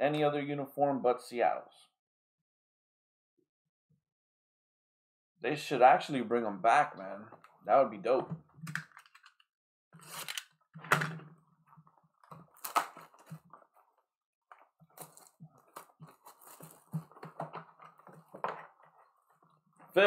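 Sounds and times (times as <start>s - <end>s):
shrink wrap tearing and crinkling: 10.0s - 10.5s, 12.4s - 13.5s, 15.0s - 17.0s.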